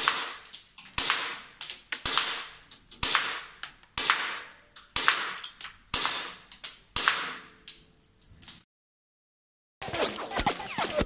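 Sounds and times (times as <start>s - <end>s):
airsoft pistol shots: 0.0s - 0.4s, 1.0s - 1.4s, 2.0s - 3.4s, 5.0s - 6.4s.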